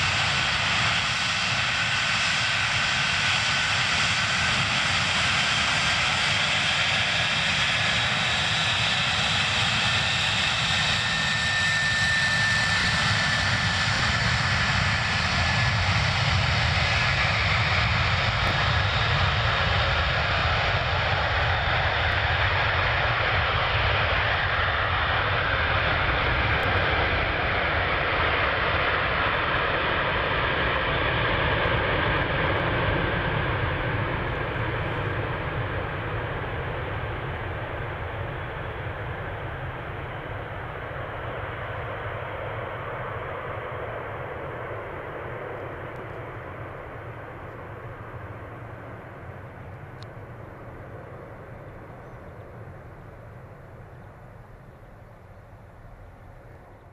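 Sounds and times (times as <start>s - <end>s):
faint jet whistle: 0.0s - 15.4s
jet engines roaring: 0.0s - 54.8s.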